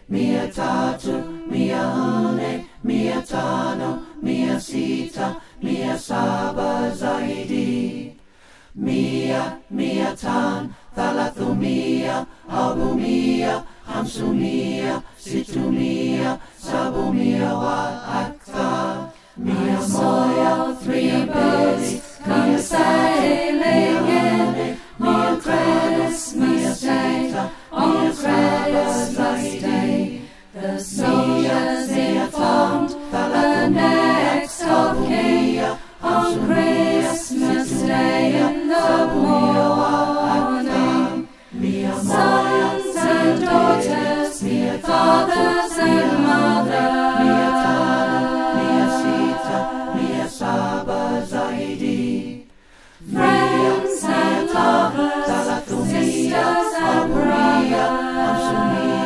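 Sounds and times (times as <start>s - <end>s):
unaccompanied choir singing: 0.0s - 59.0s.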